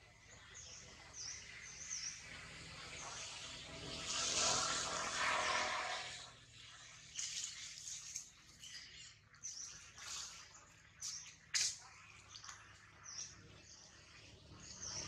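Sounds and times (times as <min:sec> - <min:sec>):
loud rushing noise: 0:03.8 - 0:06.3.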